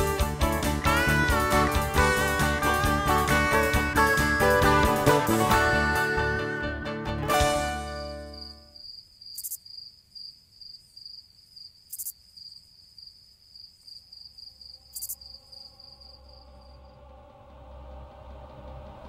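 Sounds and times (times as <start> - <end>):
cricket chirping: 7.9 - 17.5.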